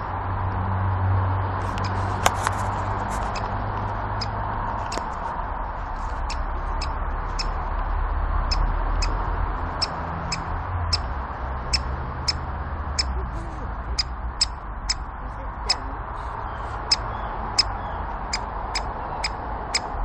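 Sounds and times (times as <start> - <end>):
woodpecker sharp kik calls: 1.7 - 3.6, 4.2 - 5.2, 6.1 - 7.6, 8.5 - 11.1, 11.7 - 13.2, 13.9 - 20.0.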